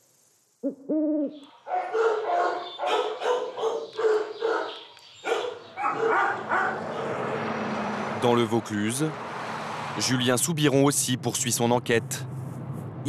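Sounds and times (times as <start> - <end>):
dog barking: 1.6 - 7.2.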